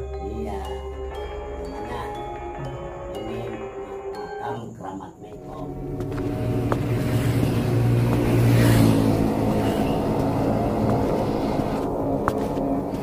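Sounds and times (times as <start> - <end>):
low traffic hum: 5.3 - 13.0
motorbikes approaching: 5.5 - 13.0
vehicle passing close by: 5.8 - 13.0.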